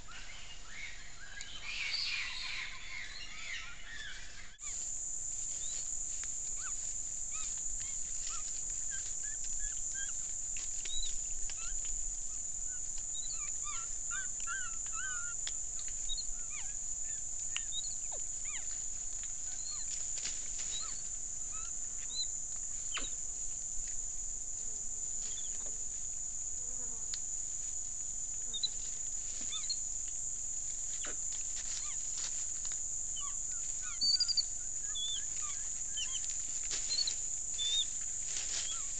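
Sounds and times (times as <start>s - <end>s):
high-pitched insect drone: 0.7s - 38.9s
rustles in dry leaves: 4.6s - 14.9s, 17.3s - 26.5s, 27.2s - 38.9s
short chirping calls: 33.8s - 35.3s.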